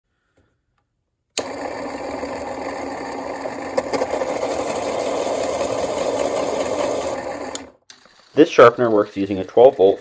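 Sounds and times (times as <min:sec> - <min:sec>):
electric pencil sharpener whirring: 0:01.4 - 0:08.2.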